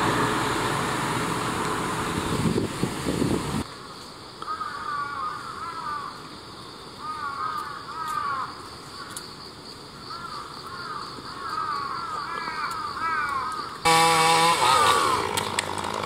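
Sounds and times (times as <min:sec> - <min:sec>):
insects trilling: 0:03.6 - 0:15.3
crows cawing: 0:04.4 - 0:06.3, 0:07.0 - 0:09.2, 0:10.0 - 0:13.9.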